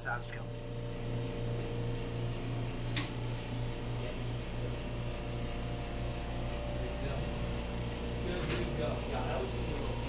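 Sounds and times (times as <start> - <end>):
low machinery hum: 0.0 - 10.0.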